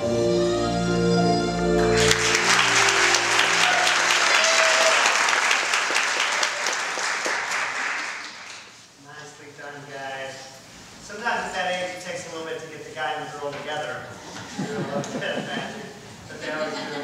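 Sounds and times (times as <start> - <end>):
music with sustained chords: 0.0 - 4.1
audience applauding: 1.8 - 8.8.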